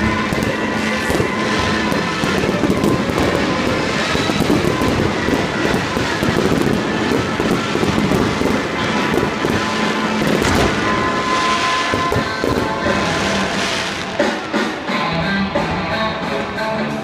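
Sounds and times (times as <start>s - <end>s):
fireworks bangs rumbling: 0.0s - 14.9s
fireworks crackling: 0.0s - 14.9s.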